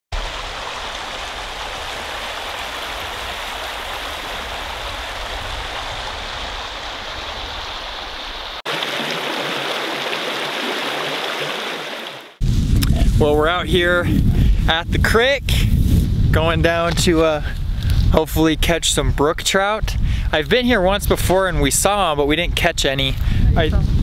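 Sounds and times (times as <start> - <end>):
creek rushing over rocks: 0.1 - 12.4.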